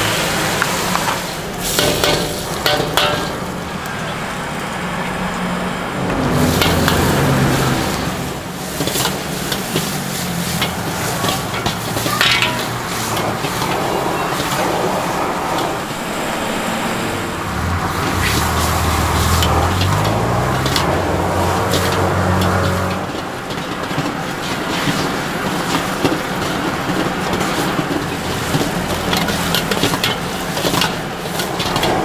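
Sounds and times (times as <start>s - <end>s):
food sizzling in a wok: 0.0s - 4.6s, 6.3s - 15.0s, 17.4s - 31.9s
metal spatula scraping a pan: 6.4s - 7.9s, 8.6s - 14.7s, 17.2s - 25.1s
low hum: 15.1s - 19.9s.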